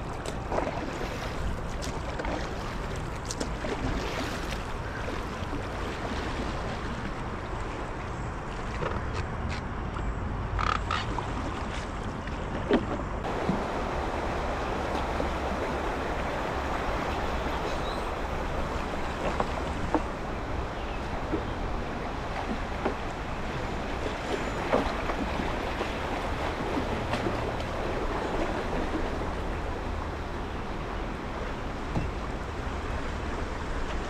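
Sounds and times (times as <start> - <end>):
knocks and splashes: 0.0 - 7.8, 10.8 - 30.3
creek rushing over rocks: 13.2 - 34.0.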